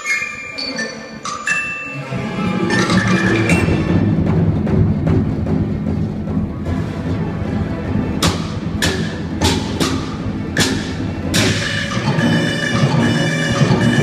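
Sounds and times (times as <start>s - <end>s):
ringing mallet percussion notes: 0.0s - 3.8s
orchestra music: 0.0s - 14.0s.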